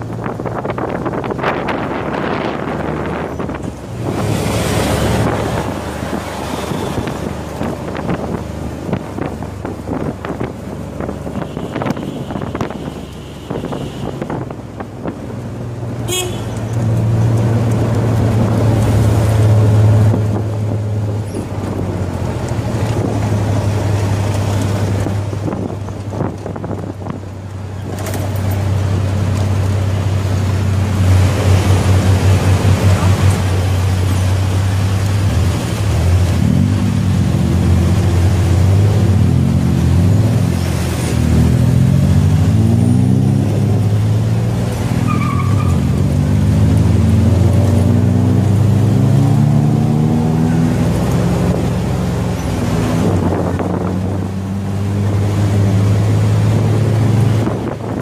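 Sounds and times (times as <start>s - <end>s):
wind buffeting microphone: 0.0s - 15.6s, 17.0s - 42.7s, 50.3s - 58.0s
traffic: 0.0s - 58.0s
horn tooting: 6.4s - 7.3s, 11.3s - 14.5s, 16.0s - 16.7s.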